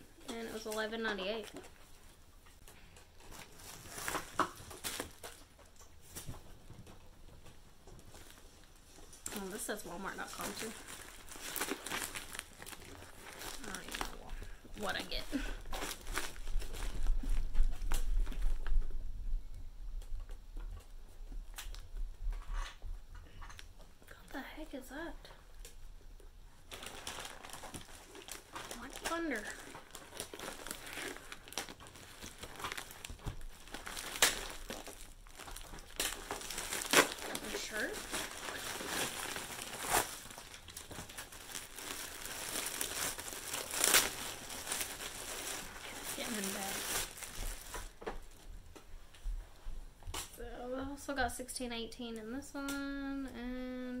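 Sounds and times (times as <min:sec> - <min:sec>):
plastic bag crinkling: 0:00.2 - 0:02.0, 0:02.6 - 0:06.2, 0:07.9 - 0:18.8, 0:26.6 - 0:48.6
plastic package rustling: 0:00.2 - 0:06.6, 0:07.8 - 0:19.0, 0:26.6 - 0:49.2.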